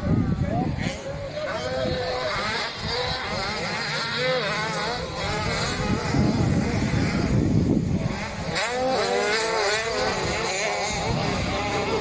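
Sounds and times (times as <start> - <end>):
motocross bike engines revving: 0.0 - 12.0.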